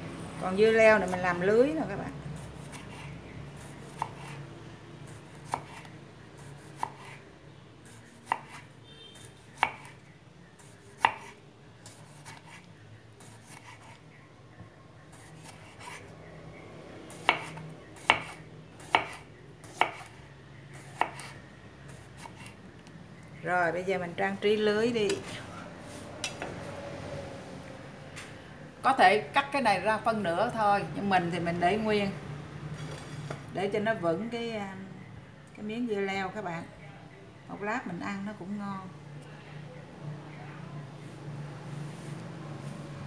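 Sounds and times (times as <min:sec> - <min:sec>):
knife slicing on cutting board: 0:03.8 - 0:04.4, 0:05.5 - 0:05.9.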